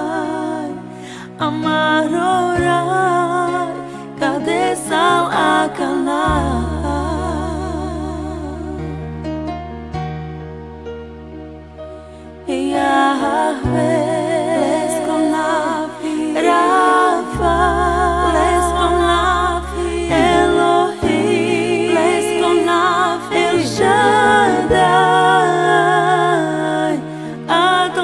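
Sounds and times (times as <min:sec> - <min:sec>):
woman singing with vibrato: 0:00.0 - 0:08.8, 0:12.5 - 0:28.0
long held bass notes: 0:16.4 - 0:26.9.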